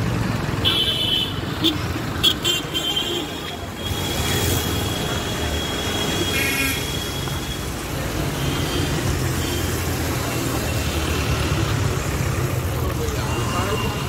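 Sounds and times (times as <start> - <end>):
car engines droning: 3.2 - 14.0.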